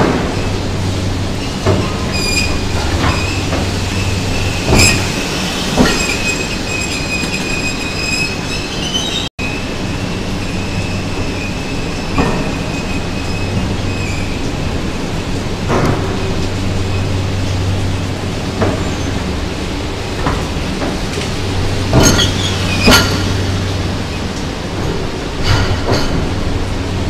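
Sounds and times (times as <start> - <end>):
train wheels rolling: 0.0 - 27.0
steady high squeal: 1.4 - 14.6.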